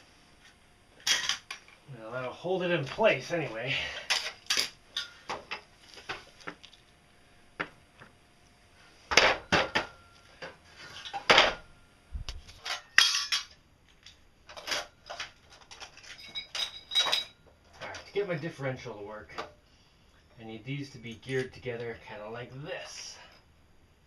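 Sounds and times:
steel parts clinking and clanking: 1.0 - 1.8, 4.0 - 5.7, 12.5 - 13.6, 14.5 - 18.2.

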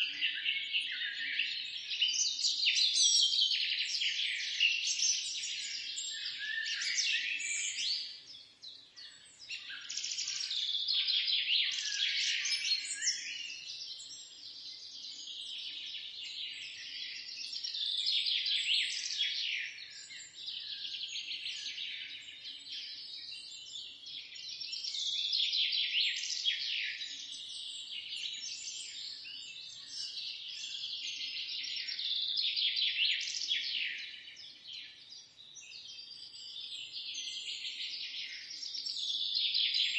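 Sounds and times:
songbirds chirping: 0.0 - 39.9.

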